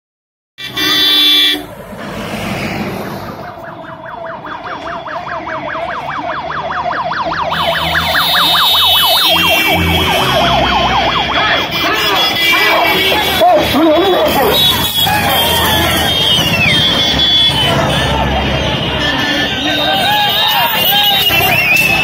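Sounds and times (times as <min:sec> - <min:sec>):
vehicle horn blast: 0:00.6 - 0:01.8, 0:07.6 - 0:10.4, 0:11.6 - 0:22.0
engine rumble: 0:00.8 - 0:05.0
electronic siren yelping: 0:03.4 - 0:12.0.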